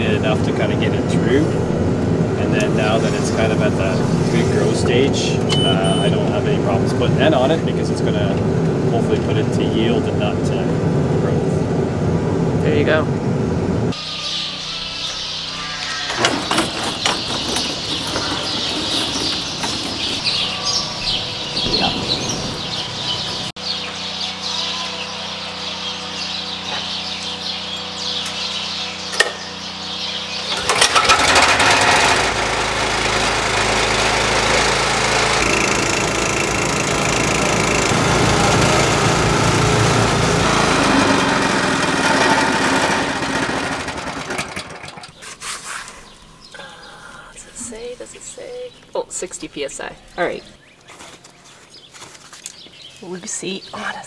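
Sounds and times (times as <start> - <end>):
small gasoline engine running: 0.0 - 8.8, 16.5 - 45.2.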